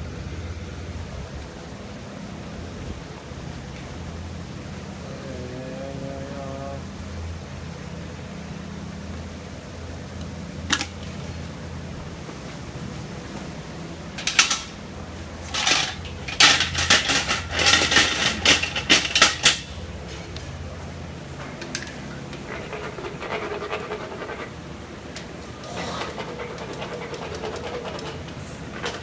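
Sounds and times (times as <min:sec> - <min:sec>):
metal instruments clattering in tray: 0:14.2 - 0:14.8, 0:15.5 - 0:20.3.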